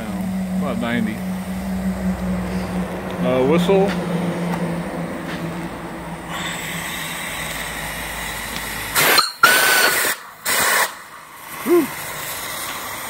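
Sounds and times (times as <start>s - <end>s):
steam hissing: 6.2s - 13.0s
steam whistle blasts: 9.0s - 10.9s.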